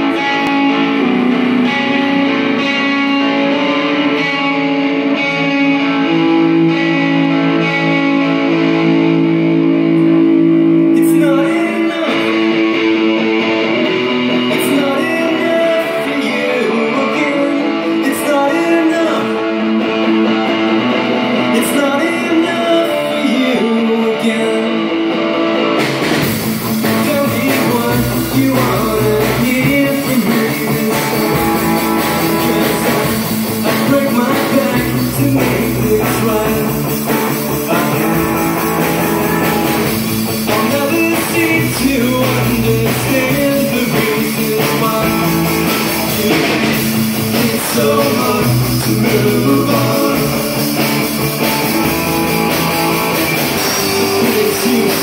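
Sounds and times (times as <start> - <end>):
bass guitar: 0.0 - 55.0
electric guitars: 0.0 - 55.0
drum kit beat: 25.7 - 55.0.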